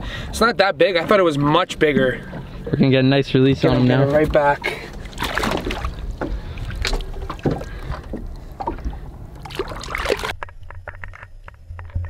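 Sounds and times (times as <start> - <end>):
water lapping against boat: 0.0 - 10.4
fish splashing in water: 4.7 - 10.4
short knocks: 5.3 - 9.0.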